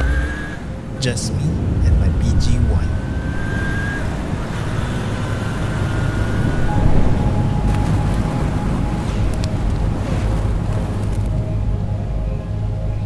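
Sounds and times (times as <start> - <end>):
motorcycle engine rumble: 0.0 - 13.0
wind and road noise: 0.0 - 13.0.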